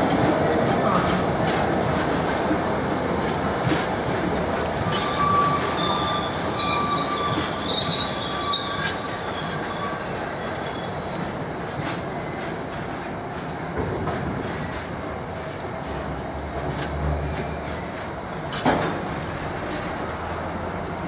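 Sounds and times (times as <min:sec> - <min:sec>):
train wheels rumbling on rail: 0:00.0 - 0:21.0
high wheel squeal: 0:04.3 - 0:11.2.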